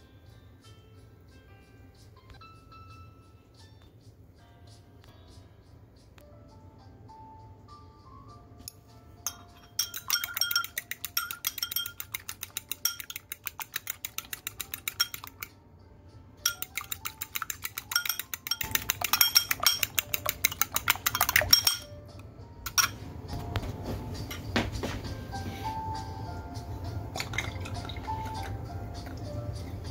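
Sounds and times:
whisk clinking against glass bowl: 9.3s - 15.5s, 16.4s - 22.0s, 22.7s - 23.0s.

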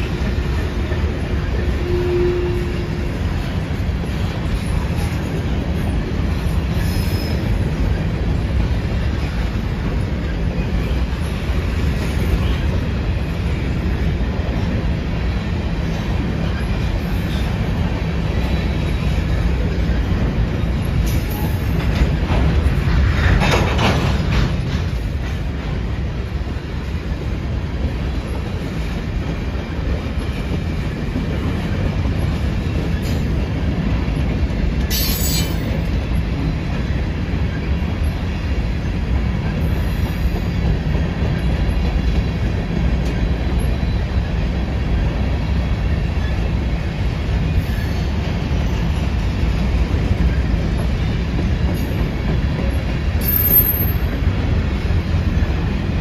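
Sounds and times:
freight train rumbling on rail: 0.0s - 56.0s
high wheel squeal: 53.2s - 54.1s.

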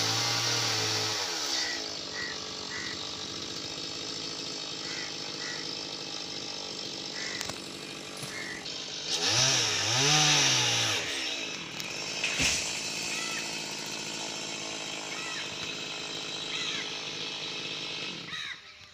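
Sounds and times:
chainsaw revving: 0.0s - 18.7s
wood cracking: 7.2s - 8.5s, 11.1s - 16.0s.

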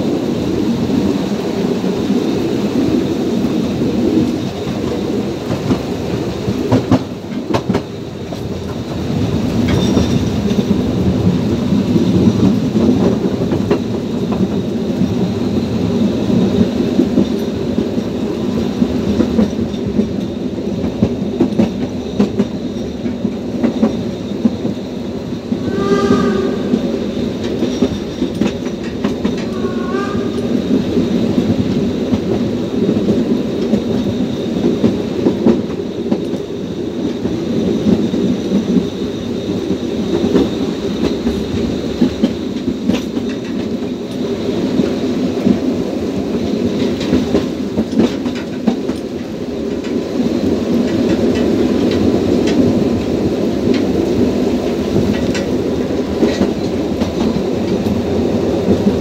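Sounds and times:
steam train rumbling: 0.0s - 59.0s
steam whistle blast: 25.6s - 26.9s, 29.5s - 30.5s.

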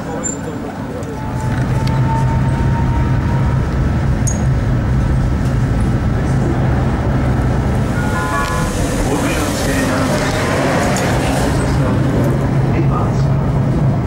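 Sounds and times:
tram motors and wheels rumbling: 0.0s - 14.0s
faint high tone: 7.9s - 9.3s.

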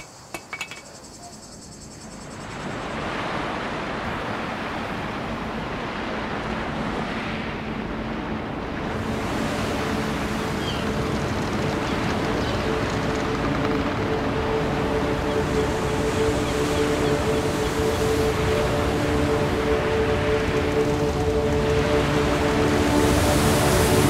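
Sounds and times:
surf washing: 2.5s - 24.0s.

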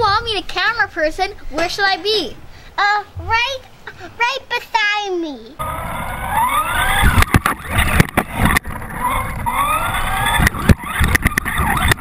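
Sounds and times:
toy truck motor whining: 5.6s - 12.0s
chassis bumping knocks: 6.9s - 12.0s.

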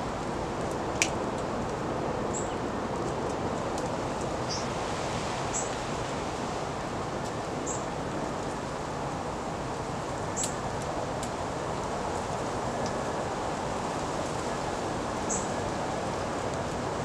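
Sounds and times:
outdoor background hiss: 0.0s - 17.0s
songbird chip calls: 15.3s - 15.5s.

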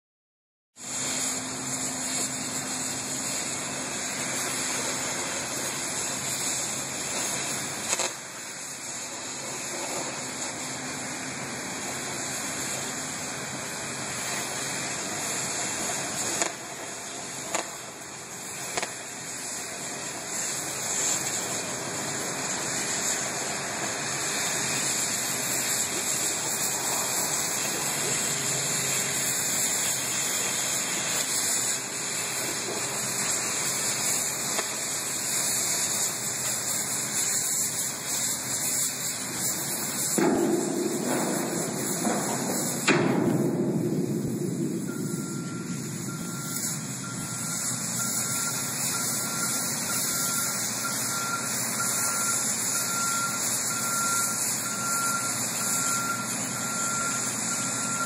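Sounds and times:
cutting torch hissing: 0.8s - 58.0s
sharp pops: 7.2s - 8.2s, 16.2s - 16.6s, 17.5s - 17.8s, 18.7s - 19.0s, 39.9s - 45.0s.

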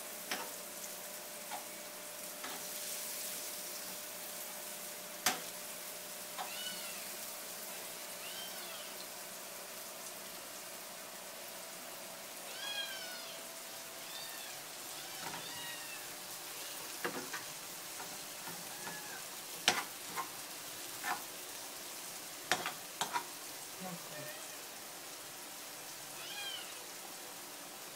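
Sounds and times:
onions sizzling in a pan: 0.0s - 27.9s
metal spoon scraping a pan: 15.2s - 15.5s, 16.8s - 21.3s, 22.5s - 23.4s.

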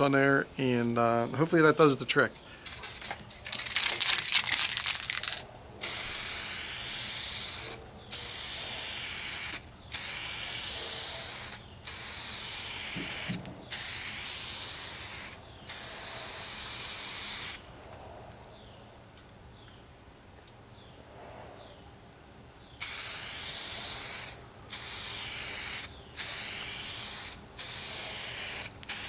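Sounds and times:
aerosol can rattling: 2.7s - 5.5s
aerosol can spraying: 2.7s - 17.6s, 22.8s - 29.0s.

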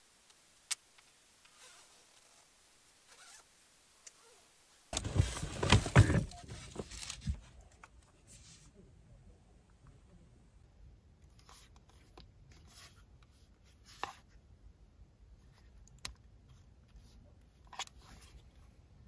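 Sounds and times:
faint plastic rustles: 4.0s - 8.9s.

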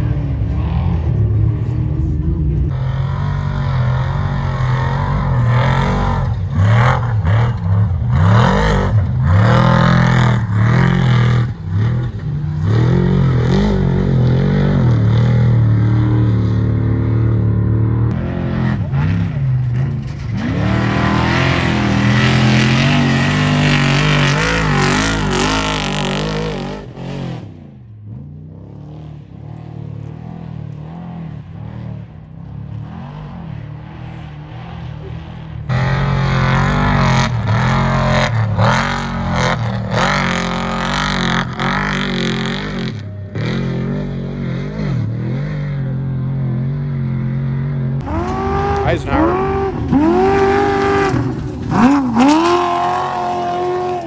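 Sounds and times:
vehicle engine revving: 0.0s - 54.0s.

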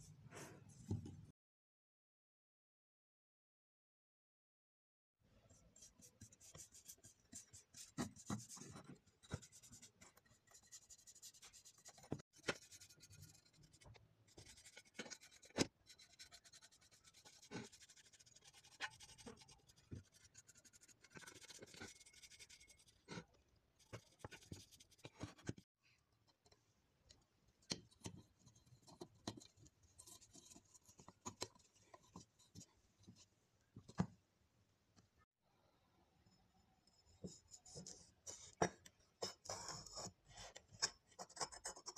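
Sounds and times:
bristle brush scrubbing metal: 5.7s - 23.1s.

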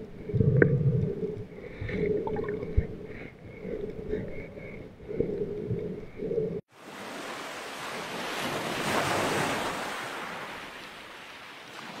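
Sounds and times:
ocean surf washing up beach: 6.7s - 12.0s.

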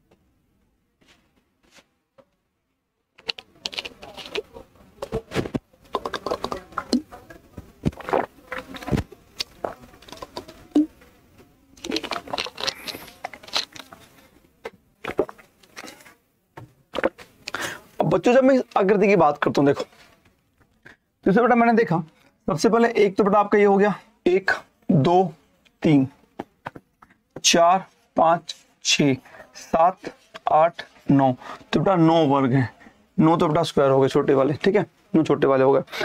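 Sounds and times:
rustling handling noise: 3.2s - 11.1s, 11.8s - 14.4s.

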